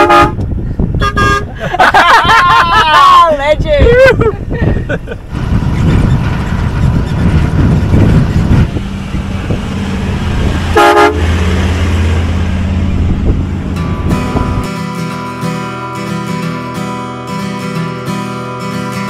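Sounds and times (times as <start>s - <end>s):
vehicle horn toot: 0.0s - 1.5s, 10.7s - 11.4s
engine and tyres on dirt: 4.2s - 17.7s.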